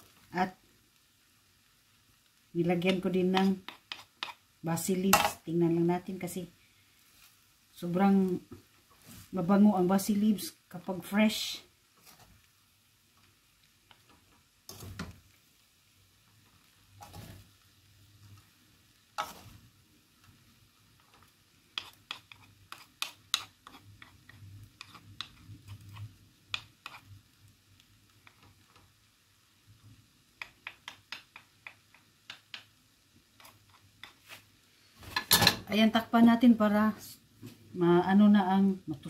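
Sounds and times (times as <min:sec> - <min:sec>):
spoons stirring rice in a wok: 0:01.2 - 0:06.2, 0:11.8 - 0:15.3, 0:16.2 - 0:35.6
spoons clicking and scraping a pan: 0:02.8 - 0:05.5, 0:17.0 - 0:17.4, 0:19.2 - 0:19.6, 0:21.0 - 0:27.1, 0:28.2 - 0:28.9, 0:30.4 - 0:32.7, 0:33.3 - 0:34.5.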